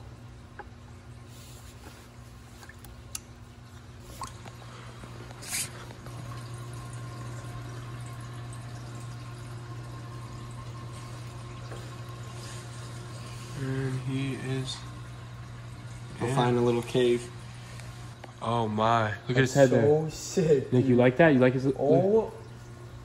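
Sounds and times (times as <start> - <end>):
steady low hum: 0.0 - 23.0
water sloshing in a plastic bucket: 1.4 - 6.4.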